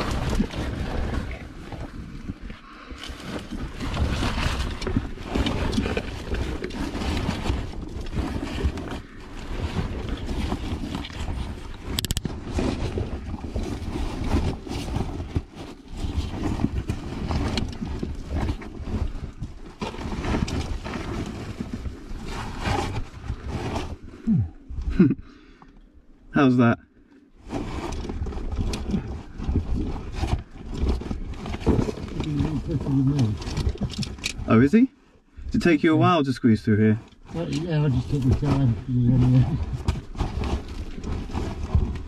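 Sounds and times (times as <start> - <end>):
body scraping against rock: 0.0 - 25.2, 27.4 - 34.7, 36.8 - 42.0
microphone rubbing noise: 20.4 - 25.2.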